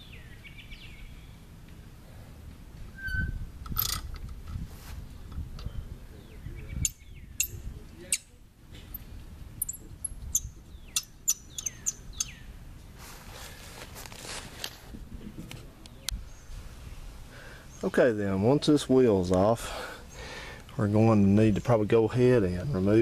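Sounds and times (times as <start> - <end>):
bird chirping: 0.0 - 1.5, 5.6 - 12.6.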